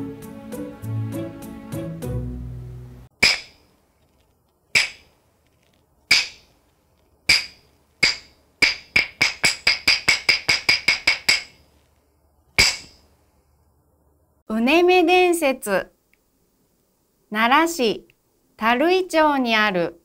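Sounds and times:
wooden clappers struck together: 3.2s - 3.6s, 4.8s - 5.1s, 6.1s - 6.5s, 7.3s - 11.6s.

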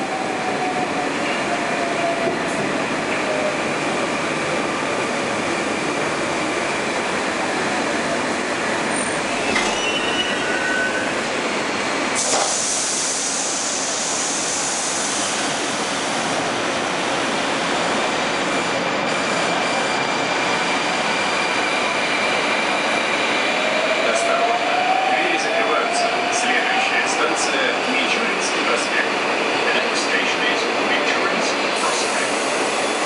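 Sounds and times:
train brakes squealing: 8.9s - 11.2s
hiss of air from doors: 12.2s - 15.6s.

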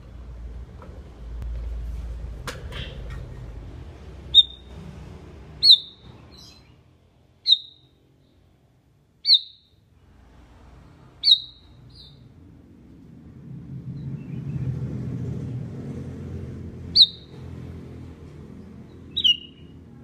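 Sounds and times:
bird chirping: 4.2s - 4.8s, 5.6s - 8.4s, 9.2s - 9.8s, 11.2s - 12.3s, 16.8s - 17.5s, 18.6s - 19.8s.

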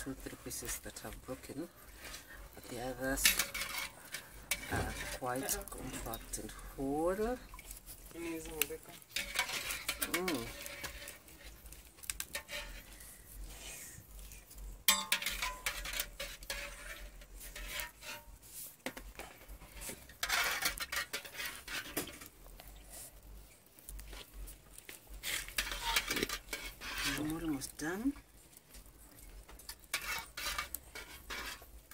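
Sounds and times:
metal utensils clinking on pot: 0.0s - 7.6s, 8.4s - 11.3s, 14.8s - 18.2s, 18.9s - 22.4s, 25.3s - 28.3s, 29.6s - 31.9s.

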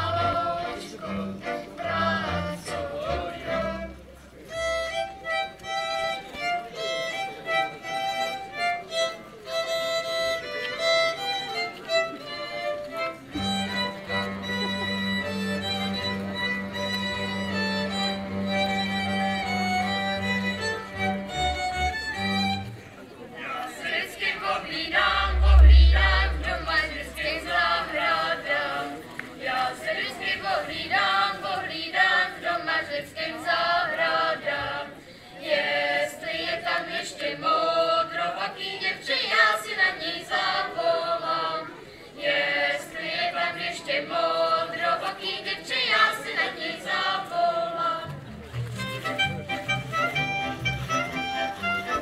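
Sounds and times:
low rumble: 24.9s - 27.9s.

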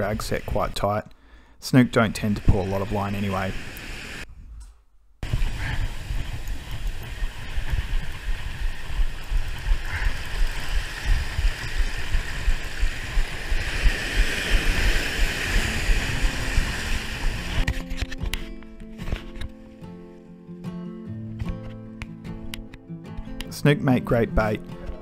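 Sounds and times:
surf washing over rocks: 1.8s - 4.2s, 5.2s - 17.7s
wind buffeting microphone: 5.2s - 17.6s
instrumental music: 17.6s - 25.0s.

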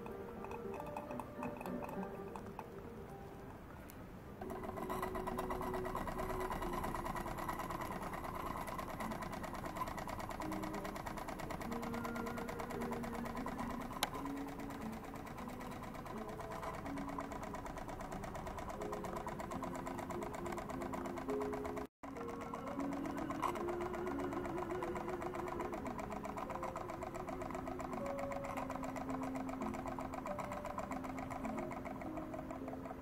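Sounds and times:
model steam engine chatter: 4.4s - 21.9s.

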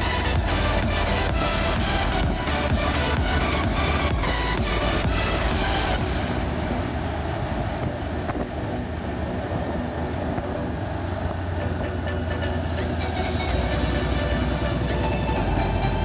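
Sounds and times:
wind noise on microphone: 0.0s - 12.1s
motorcycle engine hum: 0.0s - 16.0s.

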